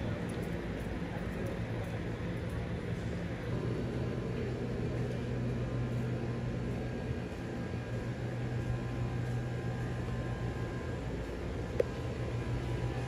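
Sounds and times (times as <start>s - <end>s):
air conditioner humming: 0.0s - 13.0s.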